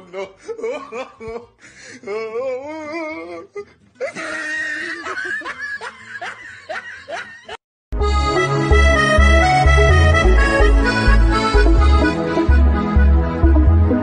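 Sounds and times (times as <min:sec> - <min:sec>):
person giggling and chuckling: 0:00.0 - 0:07.6.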